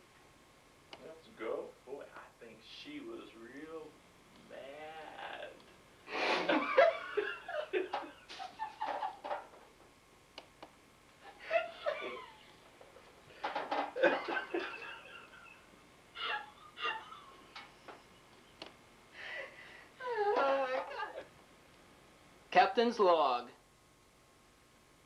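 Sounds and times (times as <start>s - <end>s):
people laughing: 6.2s - 9.3s, 11.2s - 13.1s, 13.7s - 17.6s.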